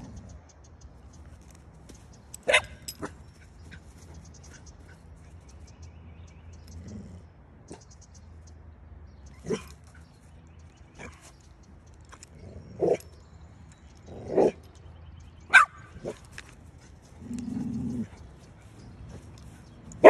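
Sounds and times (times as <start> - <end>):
dog barking: 2.4 - 3.1, 15.5 - 16.2.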